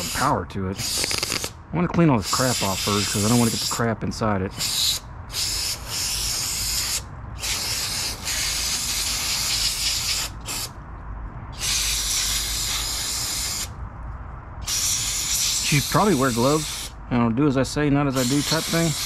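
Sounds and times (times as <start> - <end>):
aerosol spray hissing: 2.3 - 3.8, 4.6 - 10.7, 11.6 - 13.7, 14.6 - 16.9, 18.1 - 19.0.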